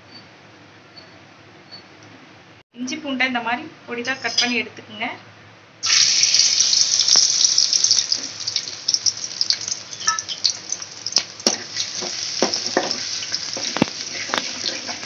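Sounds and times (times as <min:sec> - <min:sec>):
garlic sizzling in hot oil: 0:05.8 - 0:15.0
spatula scraping and knocking pan: 0:11.4 - 0:15.0.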